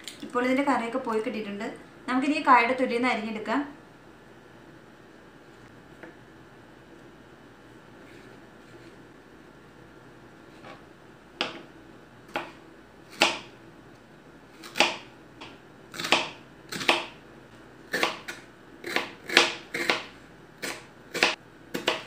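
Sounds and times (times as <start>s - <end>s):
knife chopping on cutting board: 12.3s - 13.5s, 14.6s - 17.2s, 17.9s - 22.0s.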